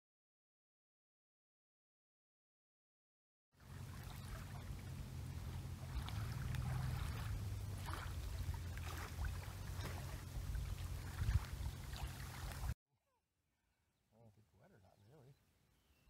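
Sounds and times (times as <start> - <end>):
small waves lapping: 3.6 - 12.8
wind buffeting microphone: 3.7 - 12.8.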